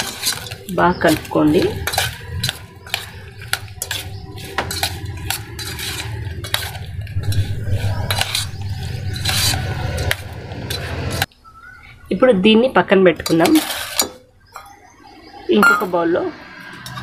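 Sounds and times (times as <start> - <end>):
metal spoon clinking in steel bowl: 0.0 - 7.5.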